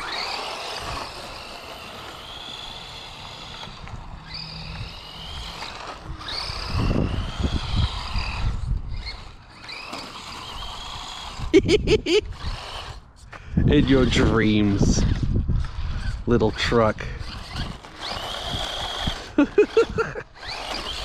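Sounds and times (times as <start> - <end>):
rc truck electric motor whining: 0.0 - 21.0
low bumps and rumble: 13.4 - 16.3.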